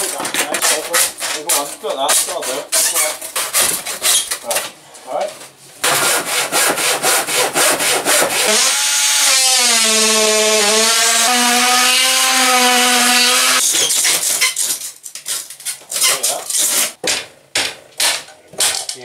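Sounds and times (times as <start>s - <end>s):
hand saw cutting timber: 0.0s - 4.3s, 5.8s - 13.6s
cordless power tool whining: 8.5s - 13.6s.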